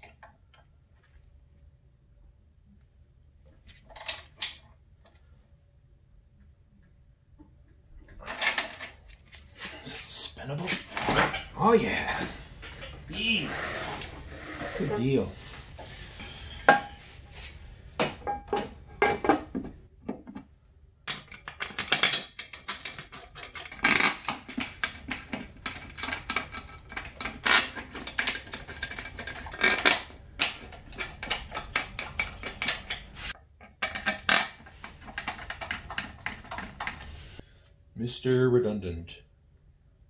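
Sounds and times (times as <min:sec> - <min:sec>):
metal cover clicking and rattling: 0:21.1 - 0:37.1.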